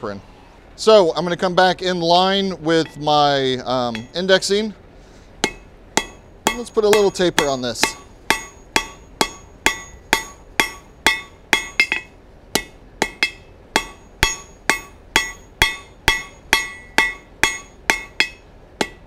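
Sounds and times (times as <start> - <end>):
hammer striking hot metal on anvil: 2.8 - 3.2, 3.8 - 4.3, 5.4 - 19.0.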